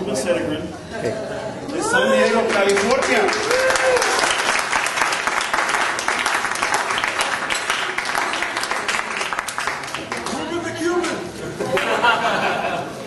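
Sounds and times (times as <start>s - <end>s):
audience applauding: 2.1s - 11.1s.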